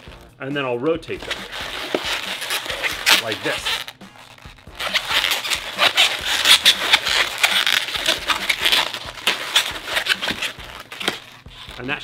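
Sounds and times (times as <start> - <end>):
balloons rubbing together: 0.0 - 0.4, 1.0 - 12.0.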